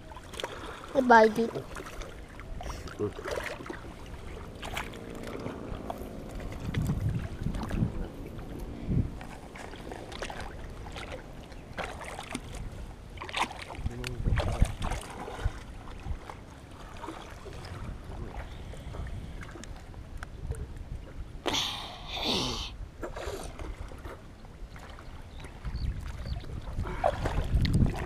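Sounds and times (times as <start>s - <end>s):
water sloshing and lapping: 0.0s - 28.0s
steady low rumble: 2.4s - 13.2s.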